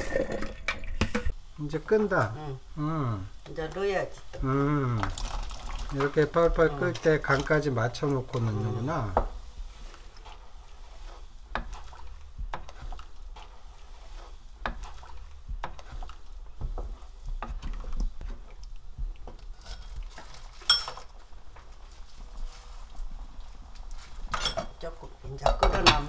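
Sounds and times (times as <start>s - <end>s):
spatula scraping metal pot: 6.0s - 17.9s, 19.3s - 20.8s.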